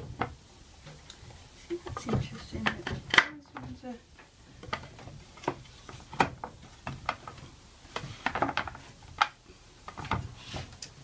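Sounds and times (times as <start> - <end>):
wooden knocks and clicks: 1.9 - 10.3.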